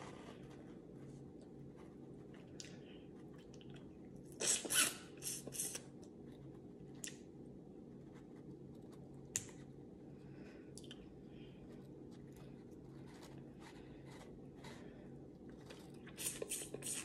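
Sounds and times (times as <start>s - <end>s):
faint steady hum: 0.0s - 17.0s
wet sucking and lip-smacking: 3.4s - 5.9s, 16.0s - 17.0s.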